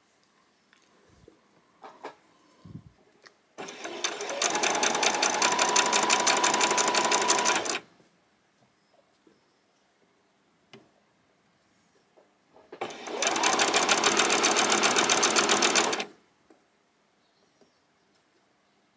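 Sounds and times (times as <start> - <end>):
sewing machine stitching: 3.6 - 7.8, 12.8 - 16.2.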